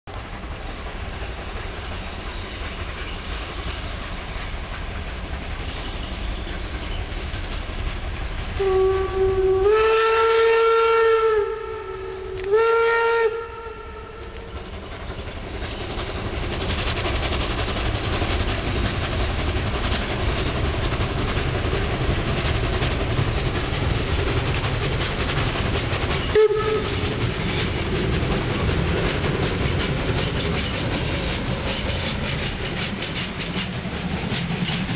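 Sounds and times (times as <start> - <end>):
train running: 0.1 - 34.9
steam whistle: 8.6 - 14.6, 26.3 - 27.1.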